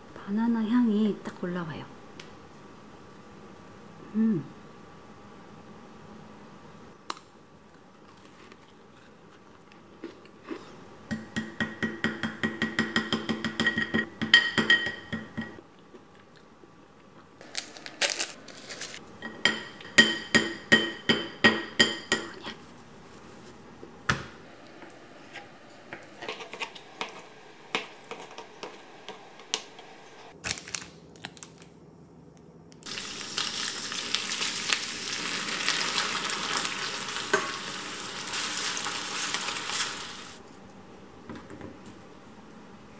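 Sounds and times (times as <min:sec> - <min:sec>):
food sizzling in a frying pan: 0:32.8 - 0:40.4.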